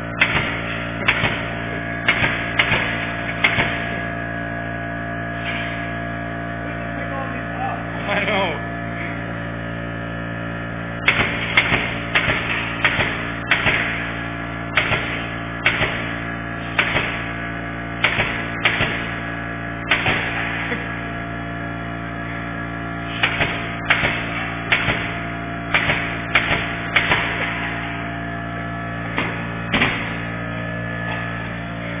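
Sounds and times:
steady machine hum: 0:00.0 - 0:32.0
pneumatic nail gun firing: 0:00.2 - 0:04.1, 0:05.4 - 0:06.0, 0:11.0 - 0:20.9, 0:23.0 - 0:28.1, 0:29.0 - 0:30.4.

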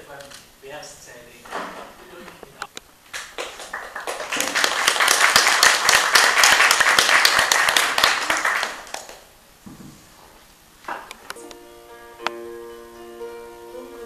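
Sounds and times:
audience applauding: 0:03.1 - 0:09.3.

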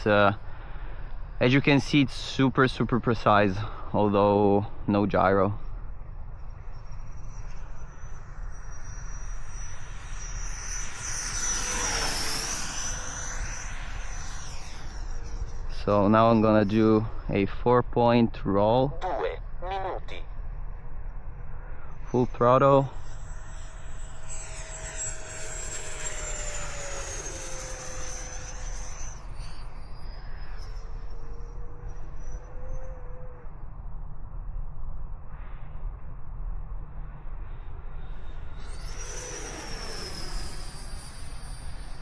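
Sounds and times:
electric ducted fan whining: 0:00.0 - 0:18.9, 0:20.3 - 0:34.1.

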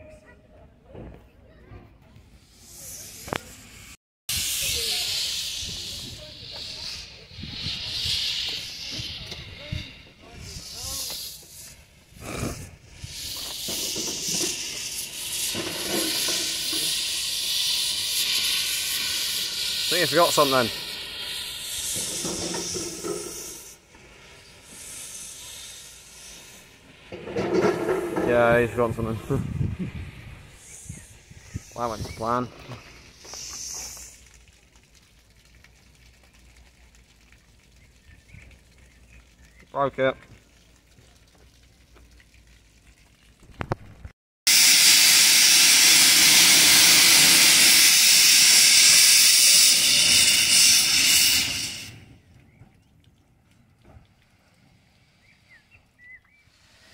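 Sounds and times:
steam locomotive hissing: 0:02.2 - 0:34.2, 0:44.5 - 0:52.2, 0:56.5 - 0:56.9.

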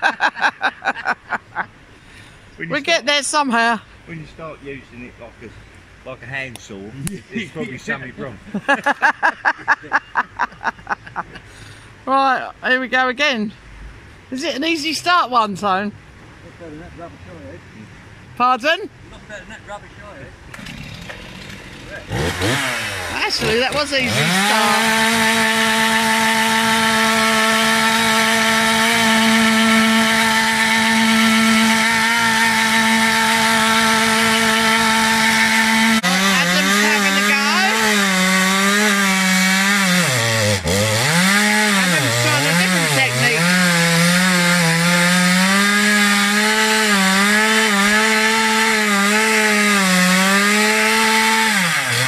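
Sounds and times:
chainsaws cutting wood: 0:20.5 - 0:52.0.

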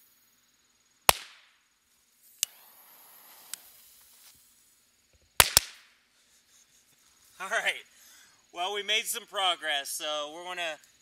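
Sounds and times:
faint hiss: 0:00.0 - 0:11.0
firecracker bangs: 0:01.1 - 0:01.5, 0:05.4 - 0:05.9.

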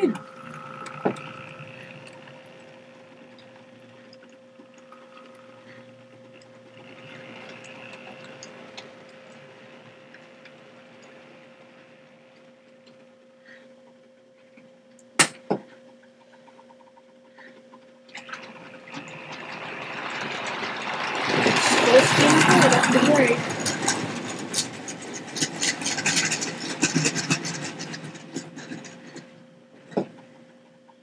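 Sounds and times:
model train electric hum: 0:00.0 - 0:13.8, 0:18.1 - 0:30.2
wheels ticking on rails: 0:18.3 - 0:29.3.

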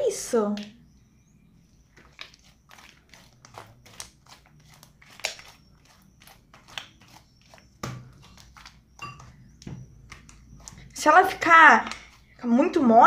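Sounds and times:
slime clicking and crackling: 0:02.1 - 0:09.0.

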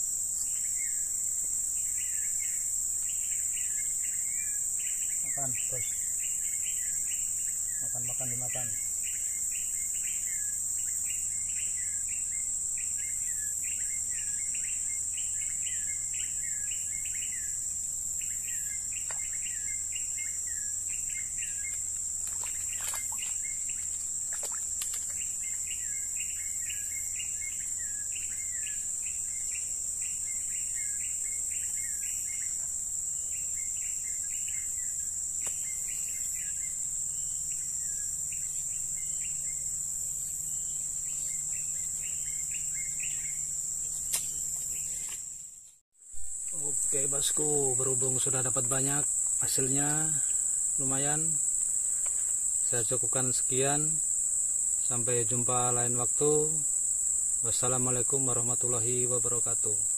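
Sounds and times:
bird chirping: 0:00.0 - 0:45.2
high-pitched insect drone: 0:00.0 - 0:45.5, 0:46.2 - 0:59.9.

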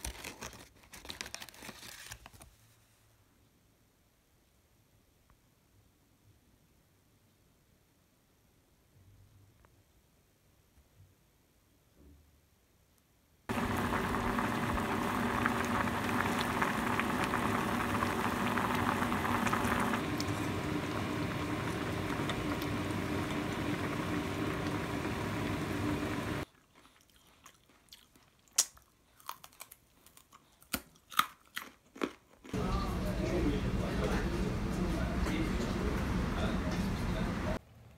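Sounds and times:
faint hum: 0:13.5 - 0:26.4, 0:32.6 - 0:37.9
broth boiling and bubbling: 0:13.5 - 0:26.5.

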